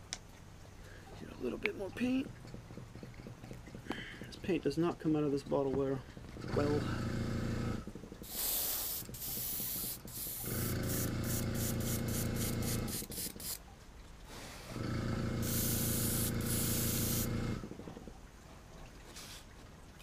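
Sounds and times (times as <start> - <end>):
compressor motor humming: 5.9 - 13.6, 14.7 - 18.0
airbrush spraying hiss: 8.2 - 13.6, 15.4 - 17.3.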